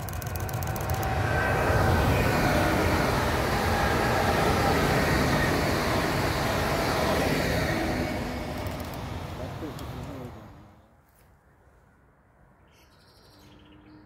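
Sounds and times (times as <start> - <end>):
train wheels on rail: 0.0 - 10.8
faint high whine: 0.0 - 10.9.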